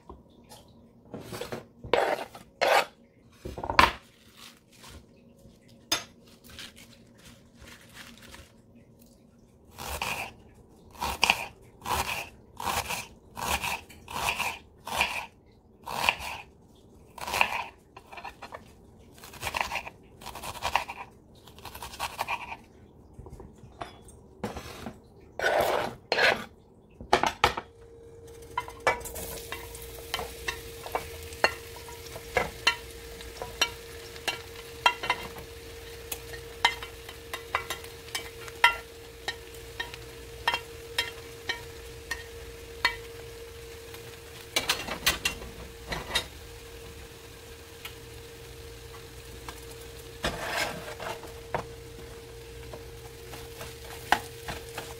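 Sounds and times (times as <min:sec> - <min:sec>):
knife cutting onion on plastic board: 0:01.9 - 0:03.0, 0:11.0 - 0:15.3, 0:15.9 - 0:16.5, 0:17.2 - 0:18.6, 0:19.2 - 0:22.6
vegetables sizzling in oil: 0:28.2 - 0:54.9.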